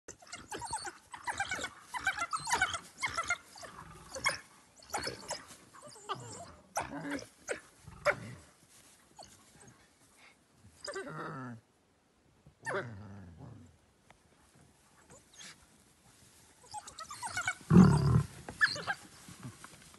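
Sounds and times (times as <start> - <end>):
wild dogs high-pitched calls: 0.1 - 8.4, 16.6 - 19.4.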